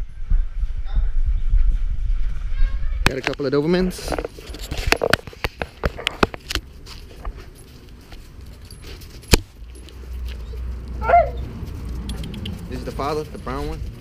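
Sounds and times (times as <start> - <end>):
low rumble: 0.0 - 3.0.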